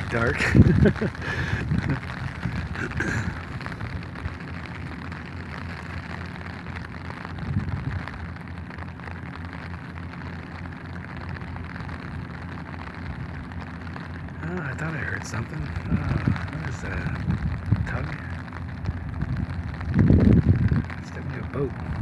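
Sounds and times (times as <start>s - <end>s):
rain pattering on umbrella: 0.0s - 22.0s.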